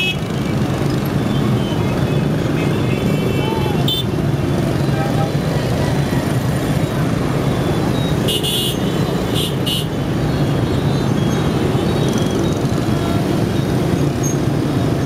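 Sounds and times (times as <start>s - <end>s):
traffic engines and tyres drone: 0.0s - 15.0s
vehicle horn toots: 8.3s - 8.8s.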